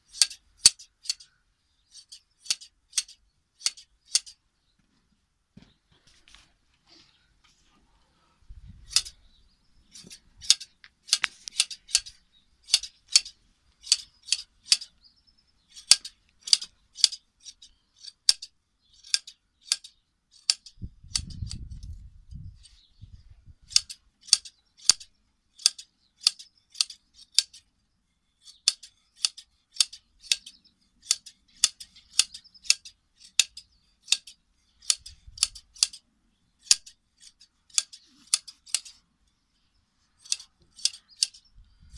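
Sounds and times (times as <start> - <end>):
scissors snipping fleece: 40.2 - 41.4.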